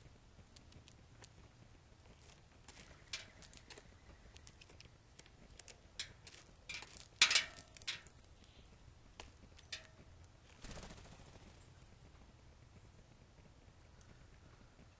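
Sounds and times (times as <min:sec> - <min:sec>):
wings fluttering: 0:09.7 - 0:12.1.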